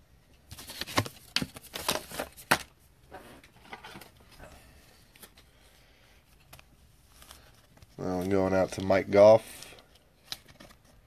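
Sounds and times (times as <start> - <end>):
cards tapping and rustling: 0.5 - 2.8, 6.3 - 11.0.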